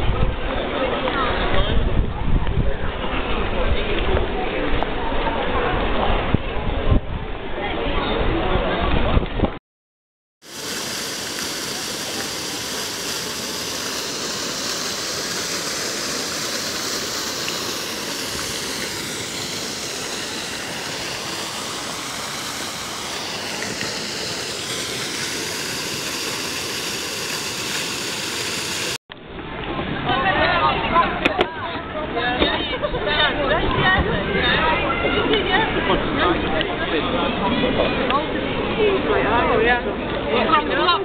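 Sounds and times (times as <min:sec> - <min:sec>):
fountain water splashing into pool: 0:10.4 - 0:31.6.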